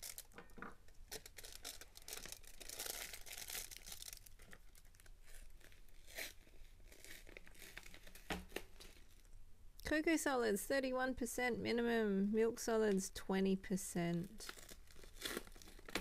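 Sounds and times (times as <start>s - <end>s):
paper wrapper tearing and crinkling: 0.0s - 0.4s, 1.1s - 9.3s, 14.4s - 16.0s.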